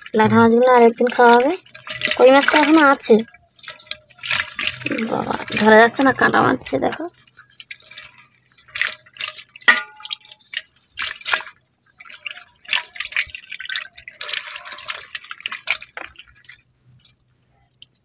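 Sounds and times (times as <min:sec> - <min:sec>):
water splashing and dripping: 0:00.0 - 0:18.0.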